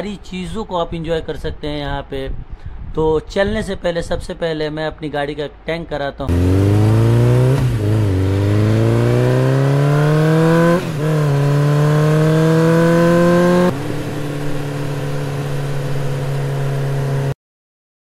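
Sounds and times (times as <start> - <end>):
motorcycle engine revving: 6.3 - 17.4.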